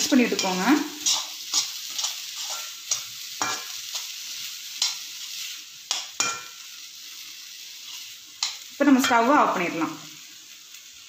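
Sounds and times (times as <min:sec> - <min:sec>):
vegetables sizzling: 0:00.0 - 0:11.0
metal spoon scraping a pan: 0:00.1 - 0:06.8, 0:07.7 - 0:09.6.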